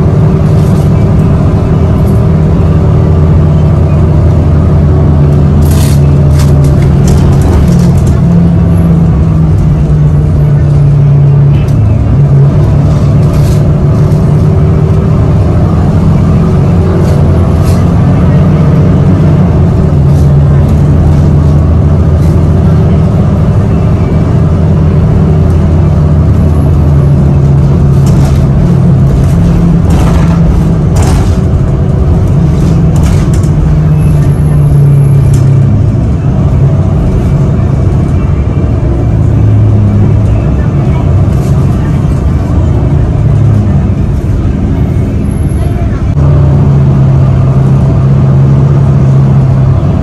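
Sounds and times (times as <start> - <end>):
bus engine drone: 0.0 - 50.0.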